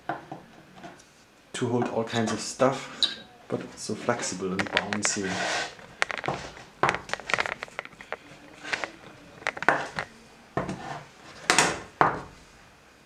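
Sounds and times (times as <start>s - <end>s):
wooden rods knocking and clicking: 4.2s - 10.8s.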